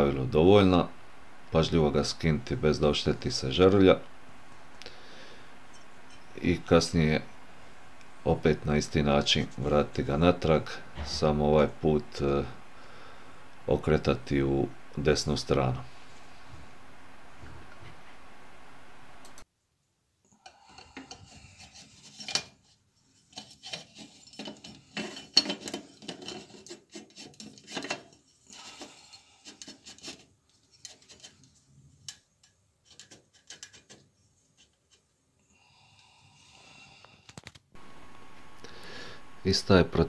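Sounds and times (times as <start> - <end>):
glass grating on metal thread: 5.7 - 6.4, 23.2 - 30.2.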